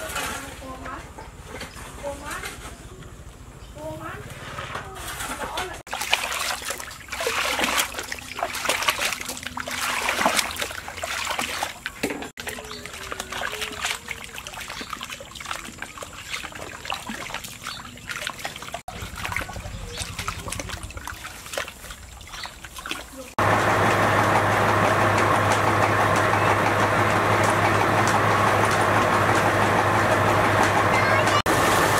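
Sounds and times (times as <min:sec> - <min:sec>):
water splashing and trickling: 0:05.0 - 0:23.5
water poured from a scoop: 0:05.1 - 0:23.4.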